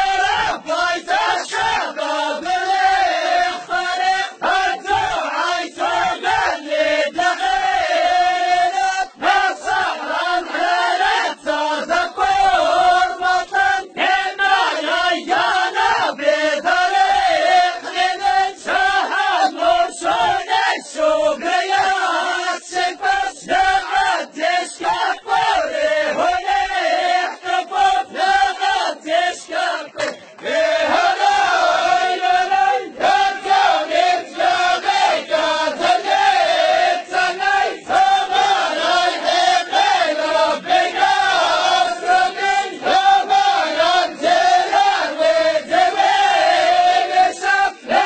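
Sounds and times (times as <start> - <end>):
men chanting in chorus: 0.0 - 48.0
rhythmic handclaps: 26.4 - 32.4.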